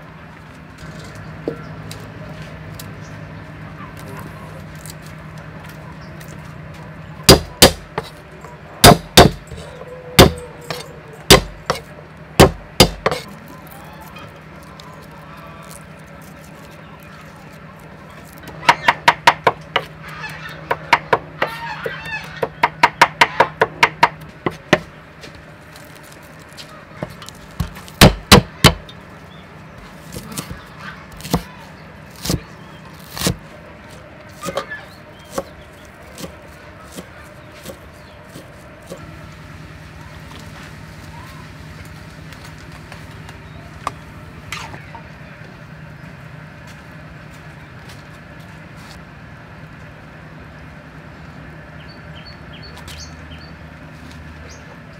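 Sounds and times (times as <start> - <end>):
steady low hum: 0.0 - 54.9
cleaver chopping on wooden block: 7.3 - 8.1, 8.8 - 9.6, 10.2 - 11.8, 12.4 - 13.3, 27.6 - 28.8.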